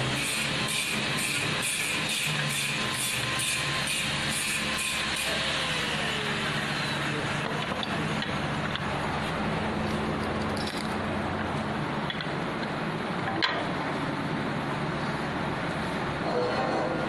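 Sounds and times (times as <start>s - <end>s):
woodworking machine running: 0.0s - 12.2s.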